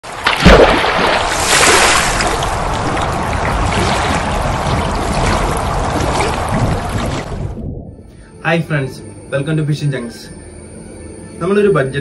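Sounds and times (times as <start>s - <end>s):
rushing splashing water: 0.0s - 7.6s.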